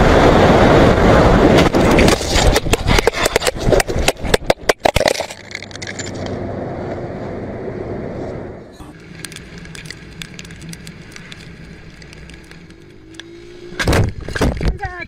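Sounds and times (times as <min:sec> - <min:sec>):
scraping slide across asphalt: 0:01.2 - 0:04.4, 0:08.0 - 0:14.6
camera tumbling over gravel: 0:01.4 - 0:06.4, 0:08.9 - 0:13.3.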